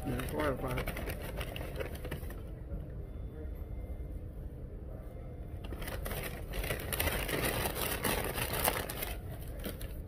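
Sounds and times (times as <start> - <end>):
paper crinkling: 0.0 - 2.4, 5.6 - 10.0
low steady hum: 0.0 - 10.0.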